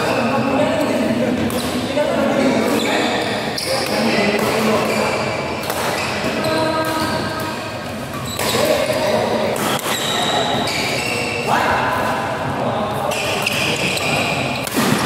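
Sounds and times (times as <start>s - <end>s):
racket hitting shuttlecock: 1.4s - 1.9s, 2.6s - 11.3s, 13.1s - 15.0s.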